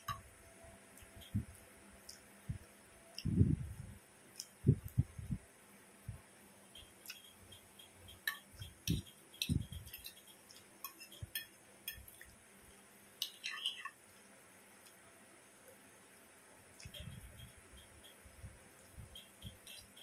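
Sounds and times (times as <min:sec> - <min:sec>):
fork clinking on a plate: 0:08.1 - 0:12.2.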